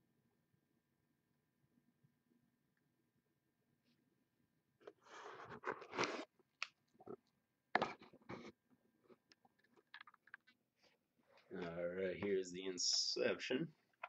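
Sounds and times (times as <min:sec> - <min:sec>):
crinkling and rustling: 0:04.8 - 0:13.2.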